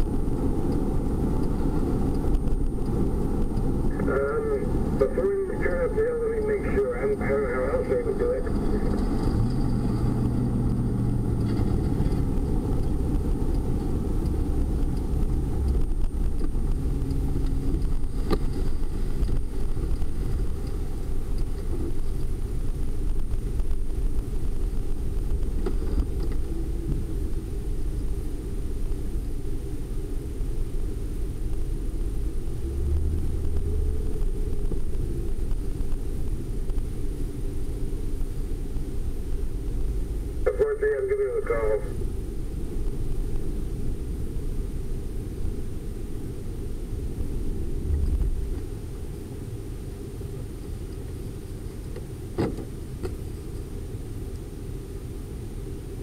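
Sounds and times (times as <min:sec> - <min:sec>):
car engine: 0:00.0 - 0:56.0
road rumble: 0:00.0 - 0:56.0.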